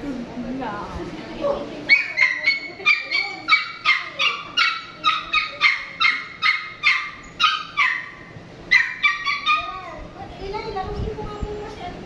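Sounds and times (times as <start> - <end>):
small dog yipping: 1.9 - 9.9.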